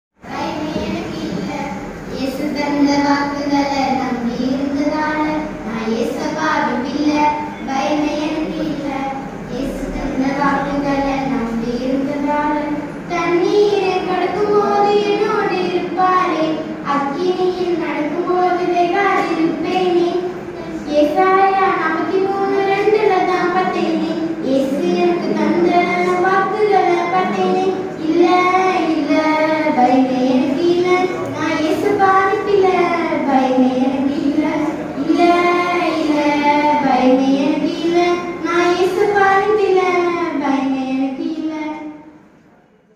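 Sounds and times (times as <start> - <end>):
girls singing into microphone: 9.1 - 41.3.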